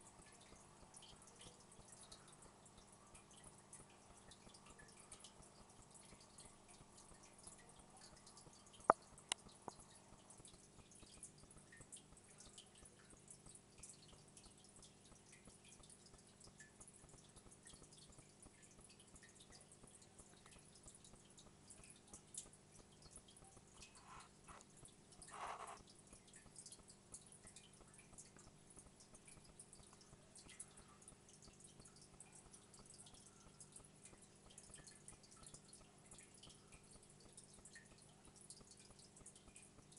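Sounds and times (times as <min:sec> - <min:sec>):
aquarium filter hum: 0:00.0 - 0:39.9
tiny irregular ticks: 0:00.0 - 0:39.9
water trickling and dripping: 0:00.0 - 0:39.9.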